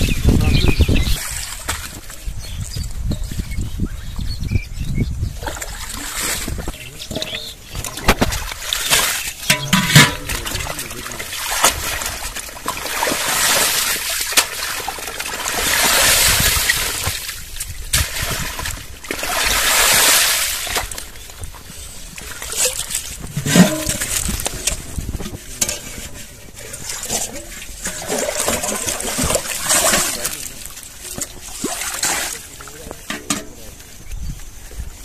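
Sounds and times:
pond water splashing by hand: 0.0s - 3.5s, 5.3s - 34.0s.

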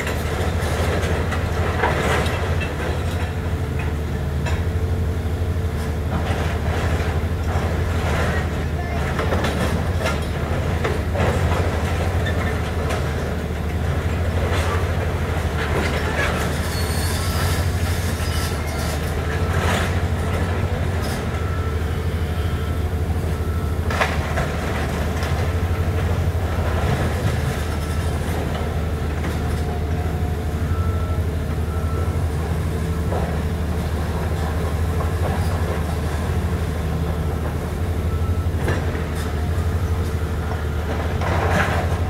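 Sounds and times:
excavator diesel engine running: 0.0s - 42.0s
metallic squeals: 16.5s - 18.9s.

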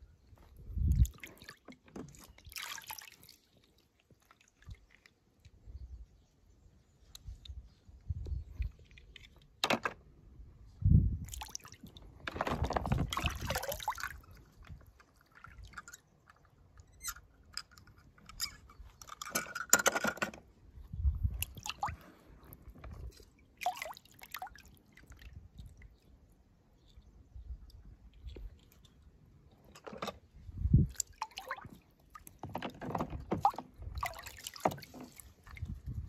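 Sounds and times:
water splashing: 1.0s - 5.2s, 12.6s - 14.6s, 23.0s - 25.8s, 30.9s - 35.8s
plastic toys clicking and knocking: 17.5s - 20.4s.

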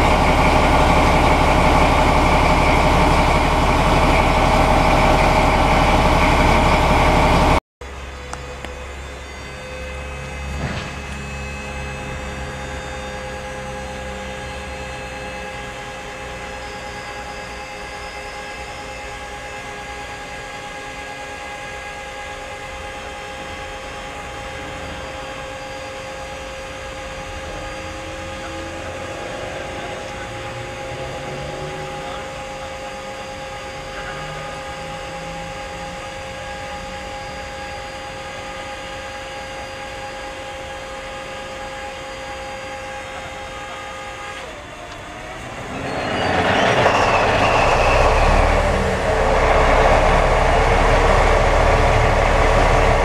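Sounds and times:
locomotives idling: 0.0s - 7.6s, 44.6s - 53.0s.

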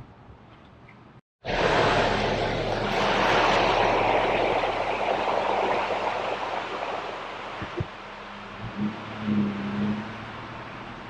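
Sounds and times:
rushing floodwater roar: 1.4s - 11.0s
truck engine running: 1.5s - 9.6s.

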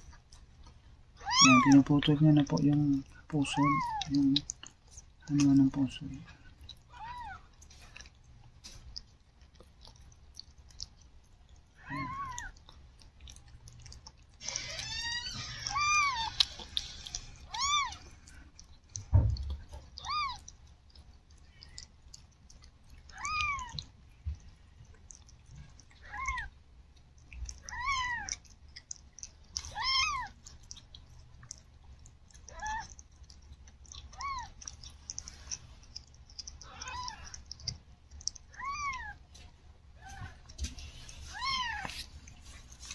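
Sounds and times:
cat licking wetly: 0.0s - 42.9s
newborn kittens mewing: 1.2s - 1.9s, 3.4s - 4.5s, 6.8s - 7.5s, 11.7s - 12.6s, 14.4s - 18.2s, 19.7s - 20.5s, 23.0s - 24.0s, 26.0s - 26.6s, 27.5s - 28.5s, 29.6s - 30.4s, 32.4s - 33.0s, 34.0s - 35.6s, 36.5s - 37.6s, 38.4s - 39.3s, 40.0s - 42.1s.

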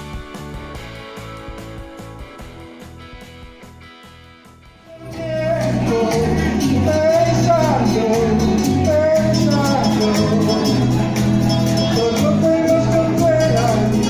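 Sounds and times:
bass notes: 0.0s - 14.0s
electronic keyboard: 0.0s - 14.0s
man singing into a microphone: 4.9s - 11.1s, 11.7s - 14.0s
programmed beat: 4.9s - 14.0s.

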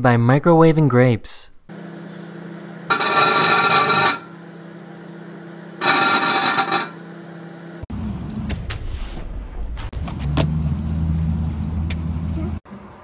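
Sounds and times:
microwave oven humming: 1.7s - 8.2s.

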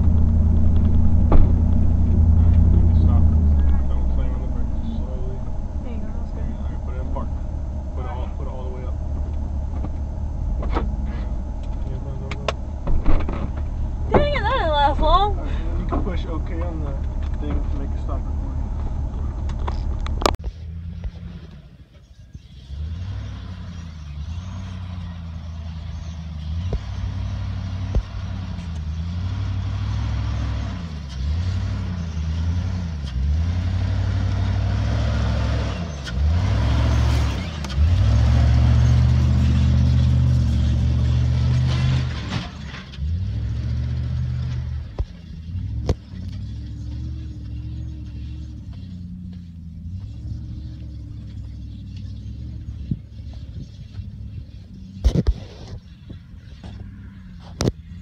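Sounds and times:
vehicle bouncing knocks: 0.0s - 4.8s, 9.0s - 15.2s
truck engine revving: 0.0s - 58.0s.

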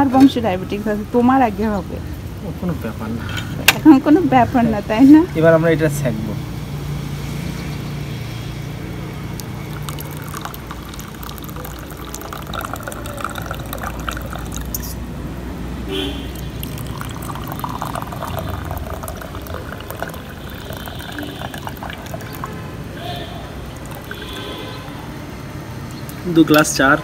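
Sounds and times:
tea pouring into glass cups: 9.1s - 15.0s, 16.3s - 24.9s.

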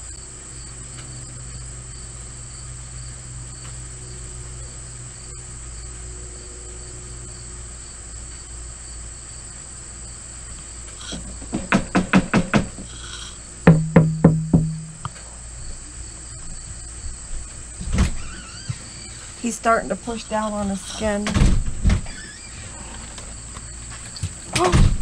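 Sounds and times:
insects trilling: 0.0s - 25.0s
low steady hum: 12.8s - 25.0s.

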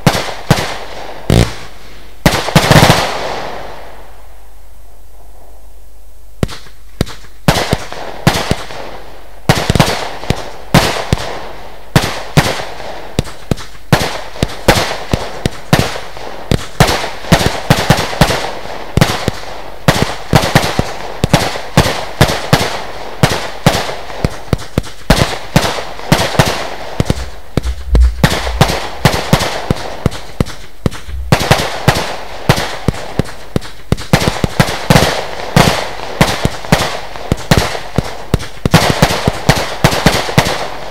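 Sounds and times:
firework cake bangs: 13.2s - 40.6s.

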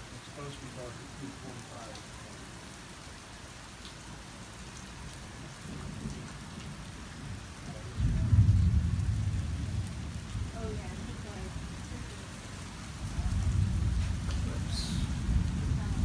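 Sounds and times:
steady rain falling: 0.0s - 16.0s
low rumble of thunder: 5.2s - 16.0s.

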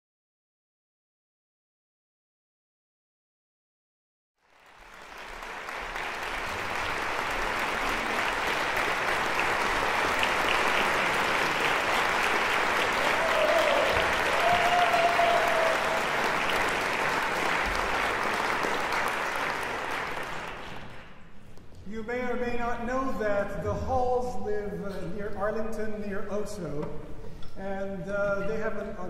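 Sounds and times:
audience applauding: 4.4s - 21.2s.

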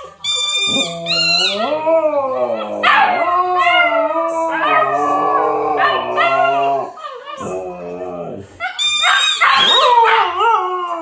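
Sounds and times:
huskies howling: 1.0s - 8.4s.

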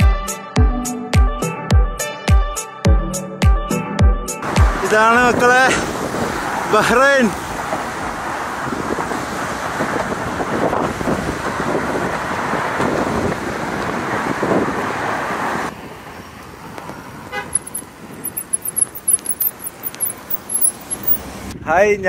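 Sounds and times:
cars passing on road: 4.4s - 21.7s
wind on microphone: 8.6s - 15.4s
vehicle horn toot: 17.3s - 19.4s
high chirping: 17.5s - 21.3s.

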